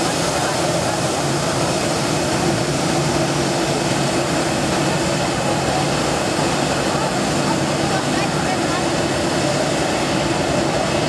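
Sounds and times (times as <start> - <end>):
jet engines rushing: 0.0 - 11.0.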